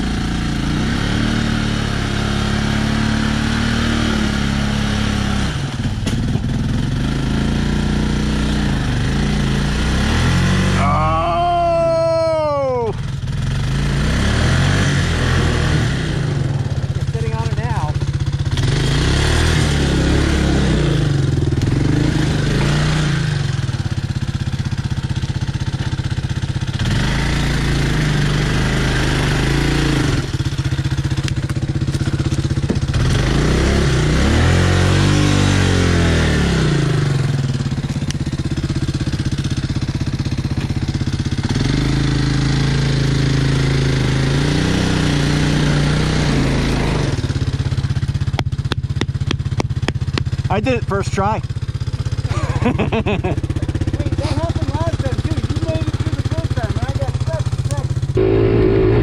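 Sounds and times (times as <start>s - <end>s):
atv engine revving: 0.0s - 59.0s.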